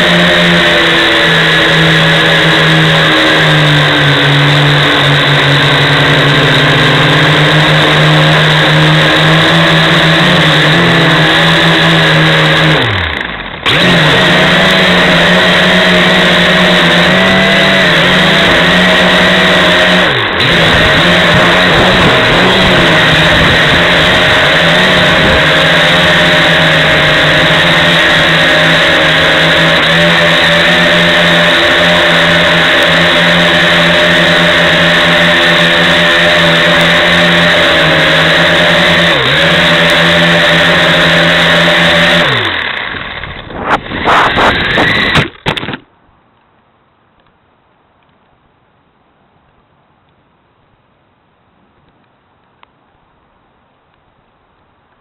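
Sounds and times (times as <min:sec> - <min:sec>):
drone motors buzzing: 0:00.0 - 0:45.8.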